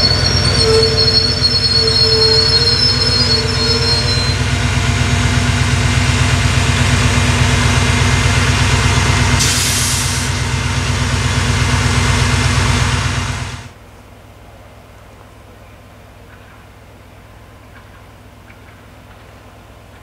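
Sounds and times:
brake squeal: 0.0 - 13.7
diesel railbus engine idling: 0.0 - 20.0
air hiss: 9.4 - 10.4.

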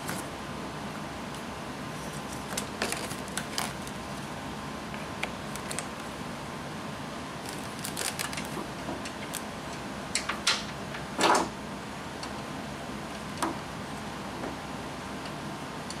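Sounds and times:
clicks of metal parts: 9.0 - 11.5.

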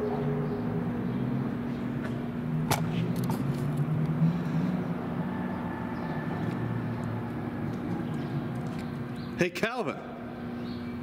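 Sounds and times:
car engine passing: 0.0 - 9.1
steady low hum: 0.0 - 11.0.

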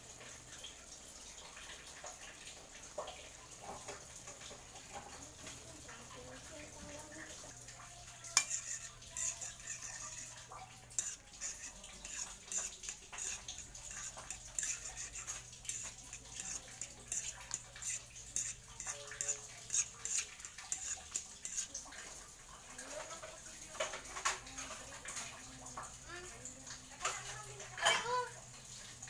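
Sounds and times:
metal spatula scraping wok: 8.2 - 21.8.

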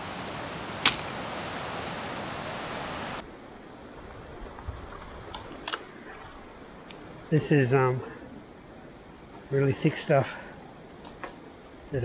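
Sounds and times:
steady hiss: 0.0 - 3.2
machete chopping branch: 0.8 - 1.2.

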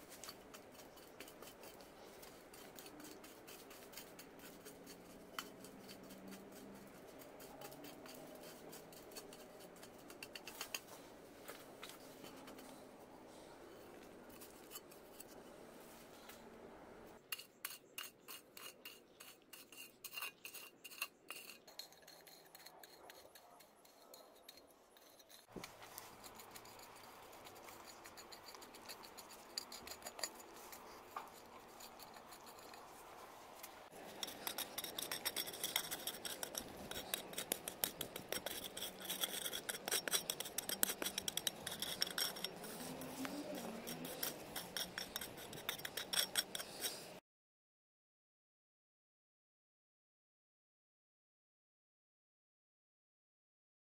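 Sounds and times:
hoe scraping dry soil: 0.0 - 12.8, 17.7 - 47.2.

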